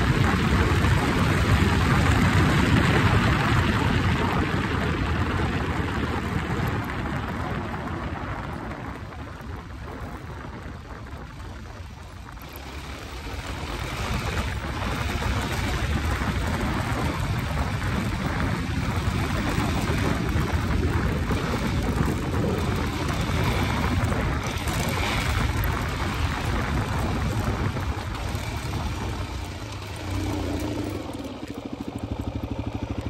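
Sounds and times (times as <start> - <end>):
motorcycle engine: 0.0 - 33.0
wind on microphone: 0.0 - 33.0
tyres on gravel: 8.4 - 33.0.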